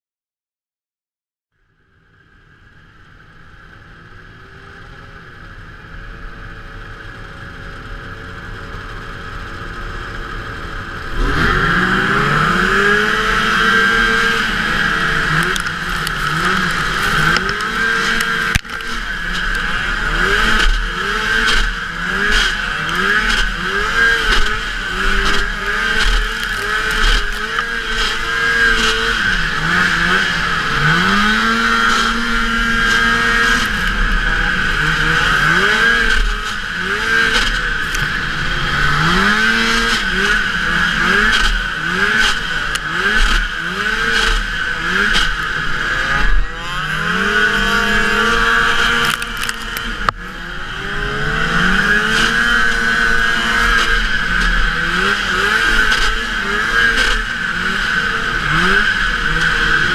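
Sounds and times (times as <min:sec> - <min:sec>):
snowmobile engines revving: 0:03.0 - 0:59.9.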